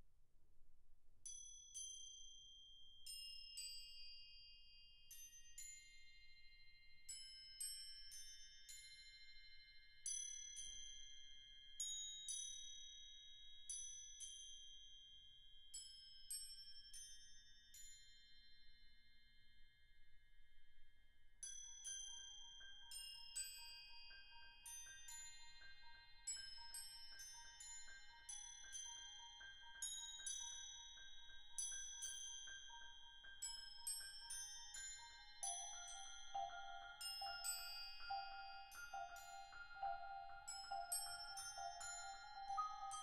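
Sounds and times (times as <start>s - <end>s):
soft mallet percussion notes: 21.7s - 43.0s
lower mallet notes: 35.4s - 43.0s.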